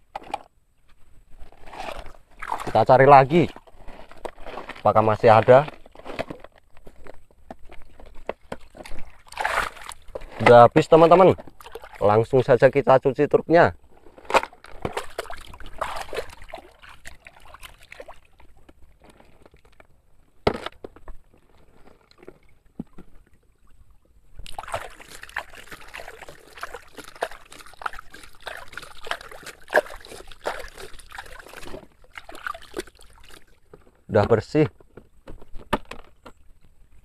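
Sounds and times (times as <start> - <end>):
water sloshing and splashing: 0.0 - 13.1, 13.8 - 37.0.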